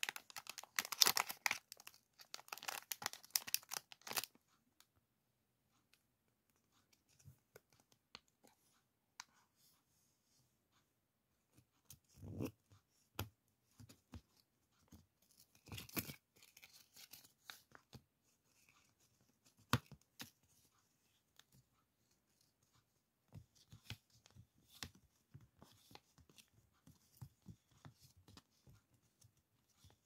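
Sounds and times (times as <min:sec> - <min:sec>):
tape crackling and rustling: 0:00.0 - 0:04.6, 0:13.7 - 0:30.0.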